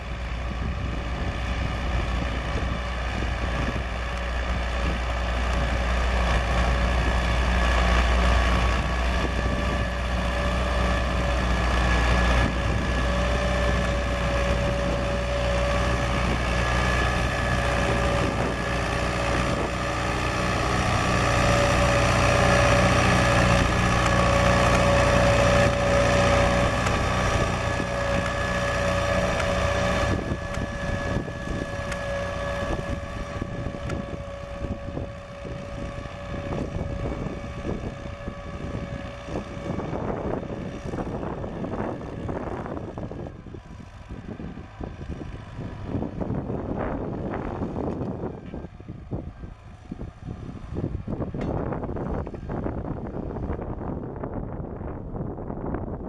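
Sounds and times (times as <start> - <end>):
tractor engine droning: 0.0 - 56.0.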